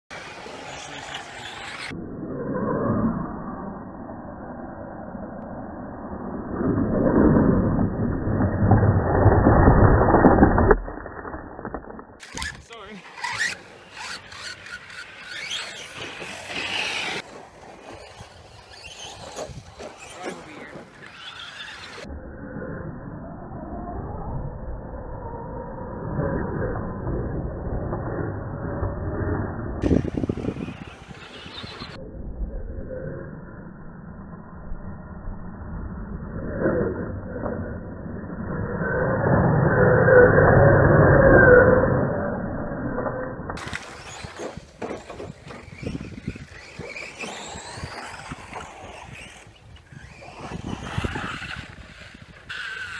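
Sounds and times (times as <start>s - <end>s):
tyres scrabbling on dirt: 11.8s - 22.0s, 43.6s - 52.9s
electric toy truck motor whining: 12.2s - 17.2s, 43.6s - 52.9s.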